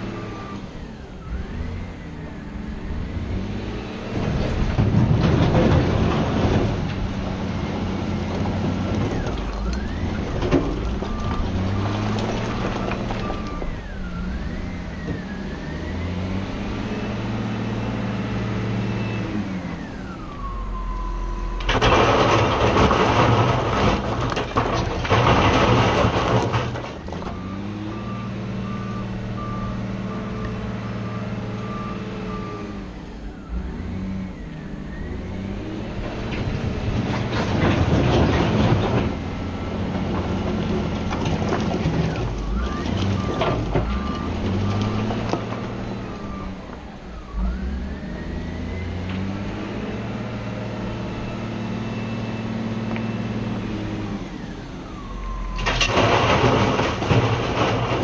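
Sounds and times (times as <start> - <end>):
reversing alarm beeping: 0.0 - 3.9, 9.5 - 21.7, 27.2 - 36.0, 42.4 - 50.3, 50.9 - 55.8
diesel engine running: 0.0 - 58.0
stone tumbling crash: 4.2 - 13.8, 21.6 - 27.4, 36.3 - 46.4, 55.6 - 58.0.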